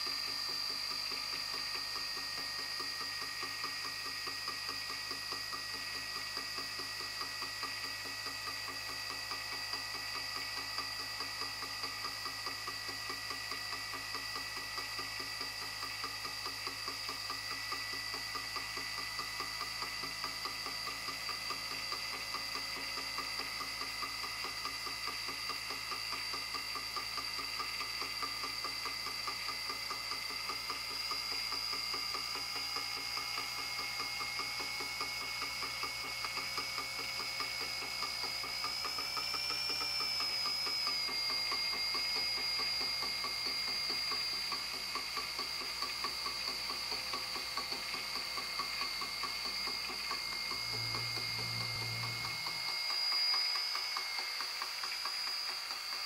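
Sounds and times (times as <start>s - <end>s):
electric motor whirring: 28.9s - 56.0s.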